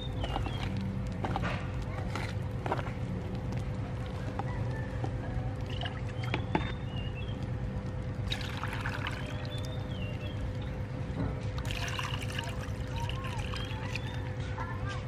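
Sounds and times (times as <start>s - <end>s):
low background rumble: 0.0s - 15.0s
water pouring into a bowl: 8.2s - 10.5s, 11.6s - 14.3s.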